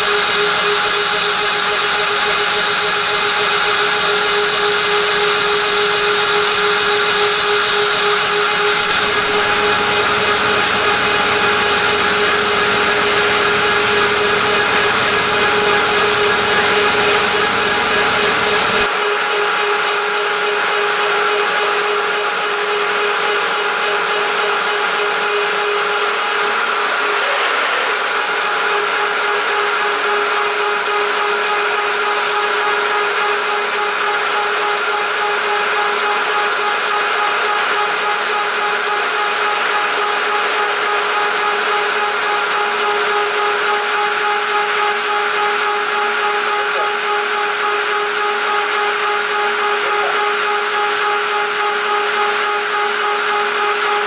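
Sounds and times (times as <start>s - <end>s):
end mill cutting aluminium hiss: 0.0s - 18.9s
router spindle whine: 0.0s - 54.0s.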